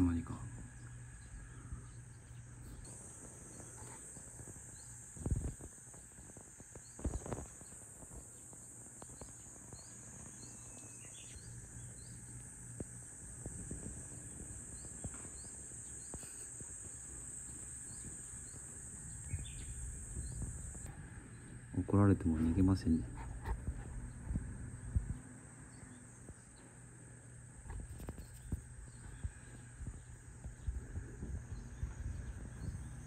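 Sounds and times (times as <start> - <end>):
insects droning: 0.0 - 33.0
bird chirps: 9.1 - 12.4, 17.9 - 21.8.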